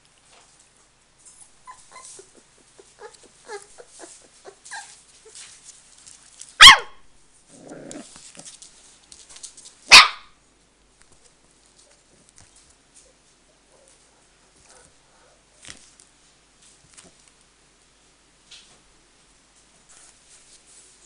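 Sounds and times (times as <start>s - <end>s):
puppy whining and yipping: 1.4s - 5.4s
puppy growling: 1.7s - 5.4s, 7.5s - 8.5s
puppy barking: 6.6s - 7.0s, 9.9s - 10.4s.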